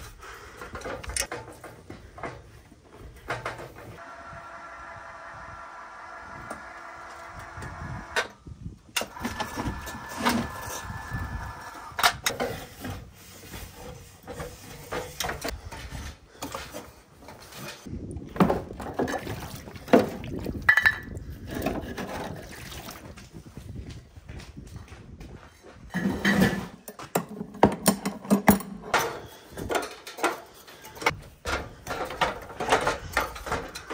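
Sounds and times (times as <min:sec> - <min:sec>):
steps on metal ladder: 0:00.0 - 0:04.0, 0:23.0 - 0:33.9.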